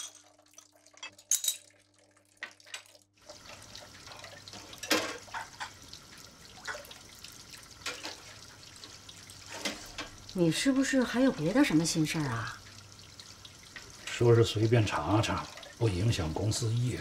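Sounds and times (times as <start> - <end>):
crockery clinking: 0.0 - 0.3, 1.0 - 1.8
tap water running: 0.0 - 17.0
hands washing under tap: 2.4 - 17.0.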